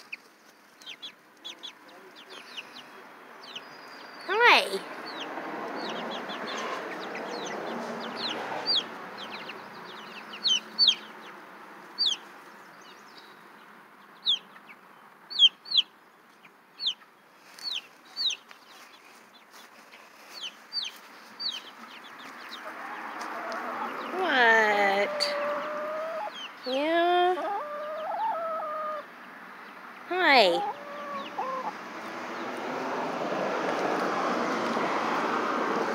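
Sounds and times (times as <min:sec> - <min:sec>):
chicks peeping: 0:00.0 - 0:34.8.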